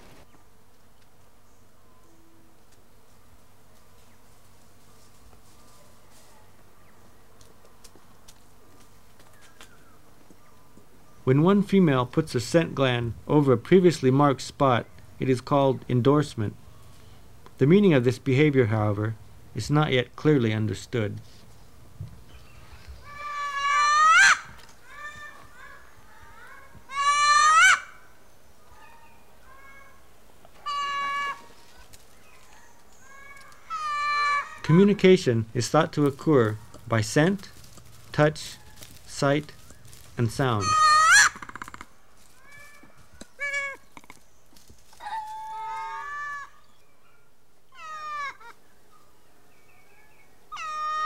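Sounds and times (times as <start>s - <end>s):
lemurs giving meow-like calls: 23.0s - 28.0s, 30.6s - 31.6s, 33.0s - 34.9s, 40.6s - 44.2s, 45.0s - 46.6s, 47.7s - 48.6s, 50.5s - 51.0s.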